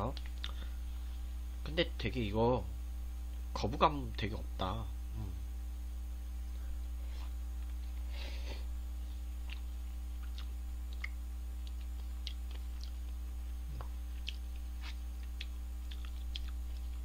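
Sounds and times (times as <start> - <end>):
low electrical hum: 0.0 - 17.0
chewing with wet mouth clicks: 0.1 - 0.6, 9.4 - 17.0.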